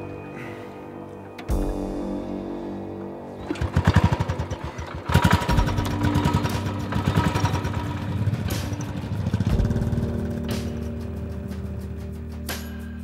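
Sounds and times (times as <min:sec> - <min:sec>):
motorcycle engines pulling away: 0:03.4 - 0:12.6.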